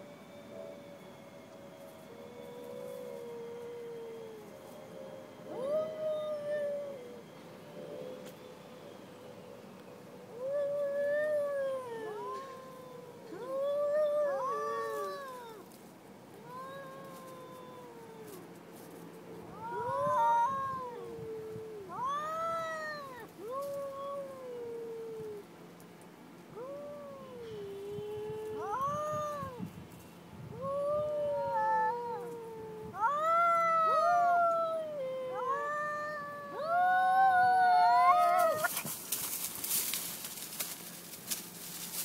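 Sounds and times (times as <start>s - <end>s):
cats caterwauling: 2.0s - 8.3s, 10.3s - 18.6s, 19.4s - 25.5s, 26.5s - 29.7s, 30.5s - 40.1s.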